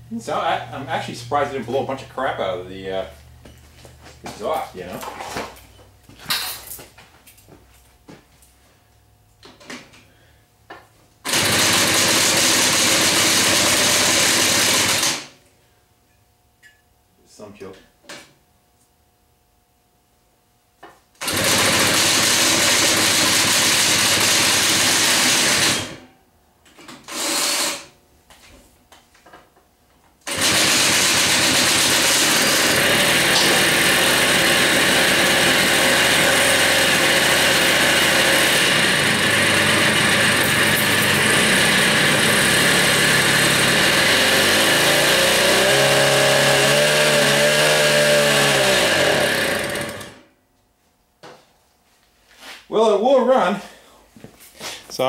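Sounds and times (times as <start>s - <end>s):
moped engine starting and running: 11.2s - 15.3s, 21.2s - 26.1s, 30.2s - 50.3s.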